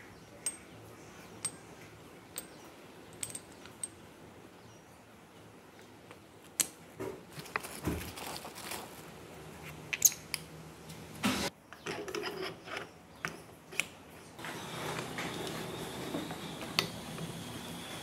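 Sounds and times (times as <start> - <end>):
metal parts clicking and tapping: 0.4 - 0.7, 1.4 - 1.7, 2.3 - 4.0.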